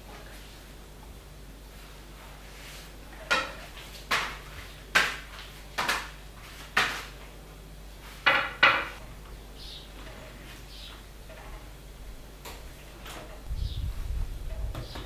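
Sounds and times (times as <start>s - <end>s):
pastry dough slapping: 3.2s - 7.3s.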